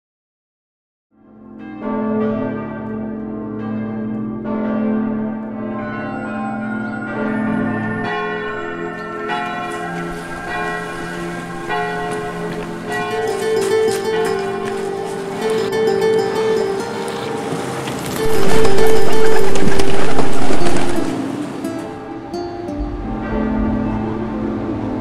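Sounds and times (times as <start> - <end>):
church bells ringing: 1.4 - 25.0
higher bell strikes: 6.1 - 24.8.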